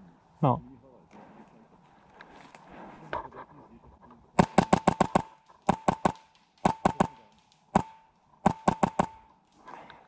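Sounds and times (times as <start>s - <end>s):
airsoft rifle shots: 4.4s - 9.4s.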